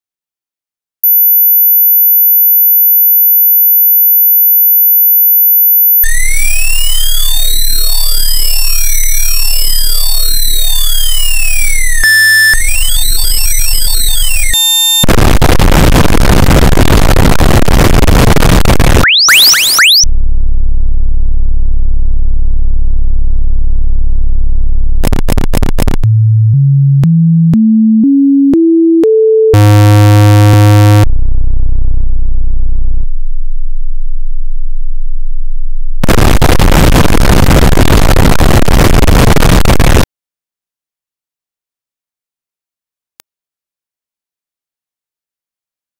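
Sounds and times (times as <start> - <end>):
sine tone sweeps: 6.0 - 15.1
low buzzing tone: 6.1 - 14.6, 20.1 - 25.0, 29.6 - 36.0
short rising tones: 19.0 - 20.0.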